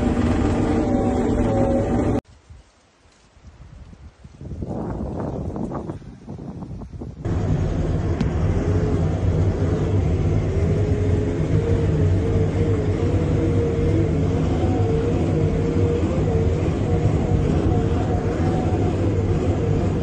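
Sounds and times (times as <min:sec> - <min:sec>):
motor engine humming: 0:00.0 - 0:02.2, 0:07.2 - 0:20.0
wavering whining tone: 0:00.0 - 0:02.2, 0:07.3 - 0:20.0.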